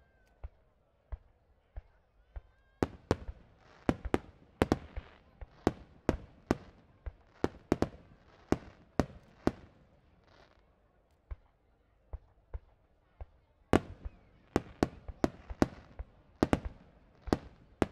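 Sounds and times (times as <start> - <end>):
fireworks bangs: 2.8 - 9.8, 13.8 - 17.9.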